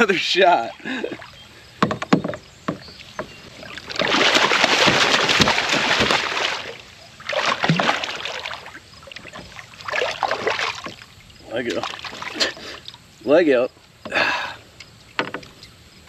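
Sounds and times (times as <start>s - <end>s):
tackle knocking against boat: 1.8s - 6.3s, 15.2s - 15.6s
fish thrashing and splashing: 2.8s - 13.0s.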